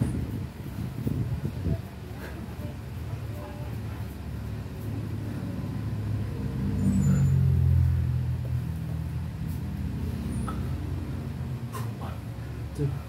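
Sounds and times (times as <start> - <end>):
low engine-like rumble: 0.0 - 13.0.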